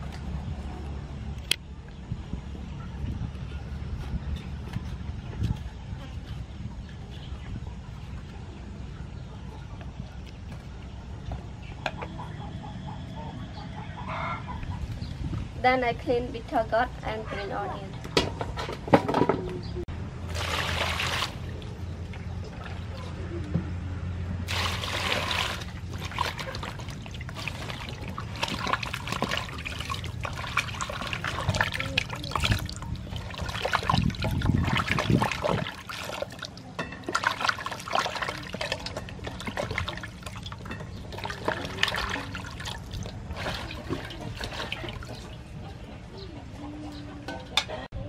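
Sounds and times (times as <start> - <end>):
water splashing in a metal basin: 20.2 - 23.2, 24.4 - 45.6.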